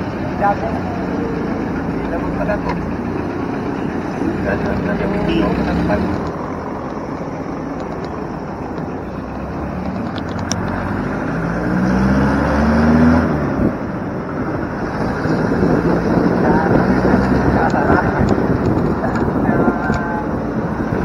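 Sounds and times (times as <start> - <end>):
engine rumbling: 0.0 - 21.0
passing engine rising in pitch: 9.2 - 18.6
tyre and wind noise: 12.9 - 21.0.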